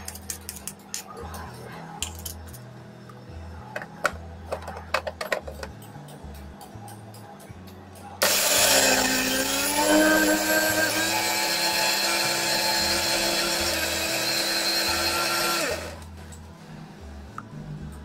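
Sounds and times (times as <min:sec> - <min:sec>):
mixer grinder whining: 0:08.2 - 0:16.1.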